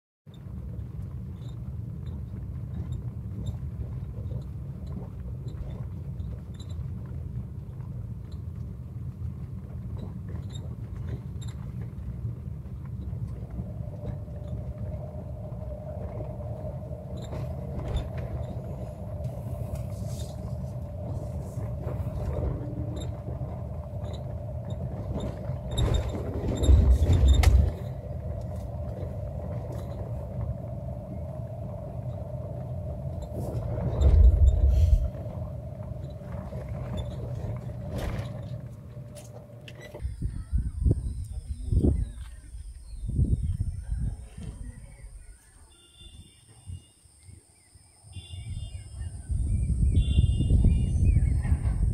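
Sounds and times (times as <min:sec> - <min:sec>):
vehicle on dirt road rumbling: 0:00.3 - 0:45.3, 0:48.2 - 0:51.9
steady hum: 0:13.1 - 0:51.9.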